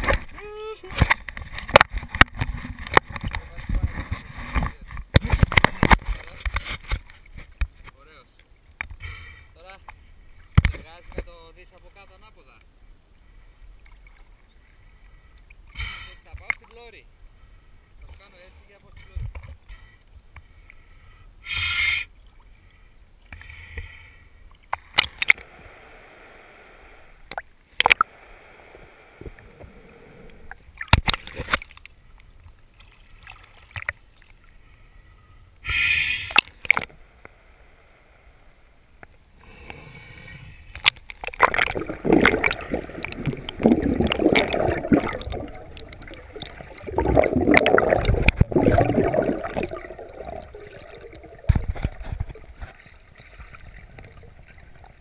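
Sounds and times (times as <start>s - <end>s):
water lapping against camera housing: 0.0s - 9.0s, 40.7s - 55.0s
short splashes: 41.2s - 54.2s
muffled underwater gurgling: 41.3s - 52.6s.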